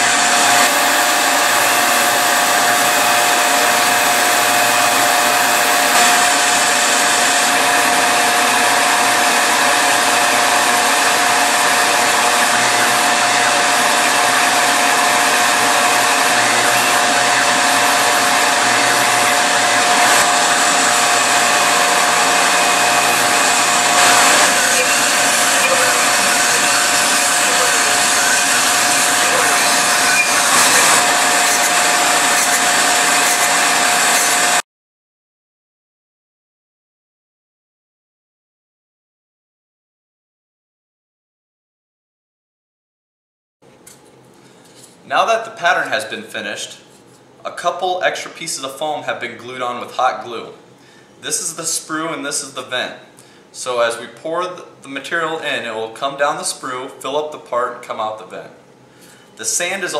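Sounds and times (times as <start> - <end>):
end mill cutting foam: 0.0 - 34.6
mill spindle whining: 0.0 - 34.6.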